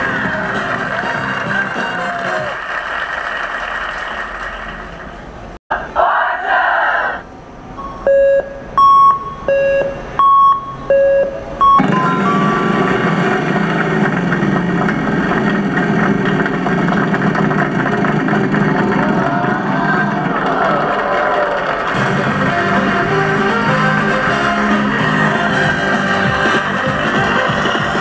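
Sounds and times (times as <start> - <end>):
low and high beeps: 7.8 - 12.9
slot machine bonus effects: 11.8 - 13.0.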